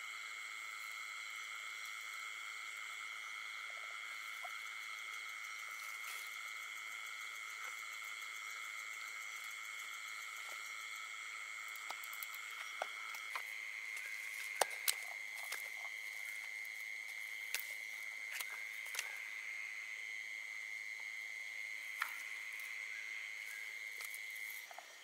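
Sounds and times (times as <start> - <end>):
night insects trilling: 0.0 - 25.0
footsteps rustling on grass: 13.2 - 19.2.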